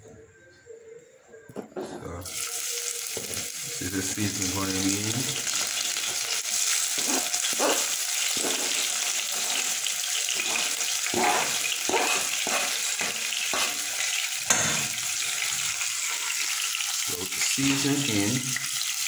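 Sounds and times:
onion sizzling in hot oil: 0:02.2 - 0:19.0
fork scraping cutting board: 0:07.0 - 0:14.0.

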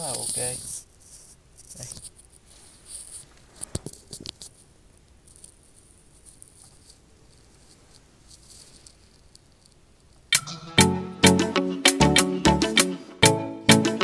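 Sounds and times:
faint room hiss: 0:00.0 - 0:14.0.

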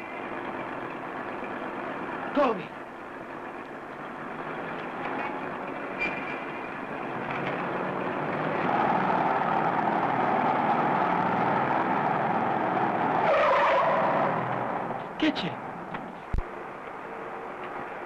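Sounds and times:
car engine: 0:00.0 - 0:18.0
street traffic: 0:00.0 - 0:18.0.

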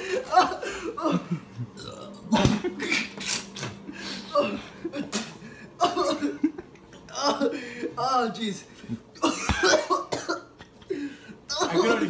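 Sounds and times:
laughter: 0:00.0 - 0:01.6, 0:05.8 - 0:07.6, 0:09.2 - 0:12.0
young man gagging and coughing: 0:00.0 - 0:08.0, 0:09.2 - 0:10.9.

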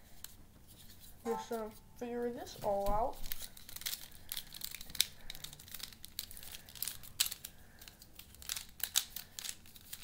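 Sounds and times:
plastic puzzle clicking and rattling: 0:03.1 - 0:10.0.

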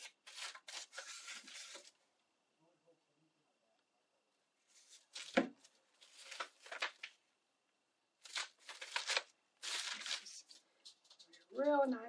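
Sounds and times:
paper rustling and crinkling: 0:00.0 - 0:02.0, 0:04.7 - 0:07.2, 0:08.2 - 0:11.4.

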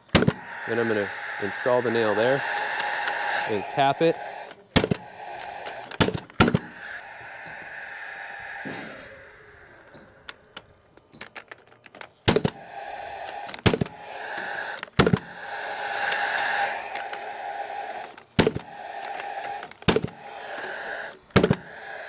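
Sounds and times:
nail gun firing: 0:00.1 - 0:00.4, 0:04.8 - 0:05.0, 0:05.9 - 0:06.7, 0:12.2 - 0:12.6, 0:13.5 - 0:13.9, 0:15.0 - 0:15.3, 0:18.4 - 0:18.6, 0:19.5 - 0:20.2, 0:21.3 - 0:21.6.

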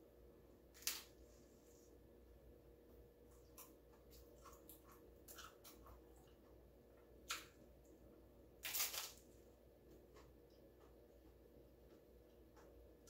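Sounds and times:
crunching and chewing taco shell: 0:03.2 - 0:07.5, 0:08.6 - 0:12.7.

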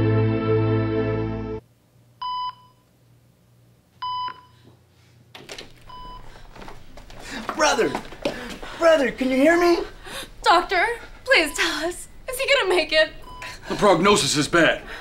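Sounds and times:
theme music: 0:00.0 - 0:01.6
heart monitor beeps: 0:02.2 - 0:02.8, 0:04.0 - 0:04.6, 0:05.9 - 0:06.6, 0:13.2 - 0:13.6.

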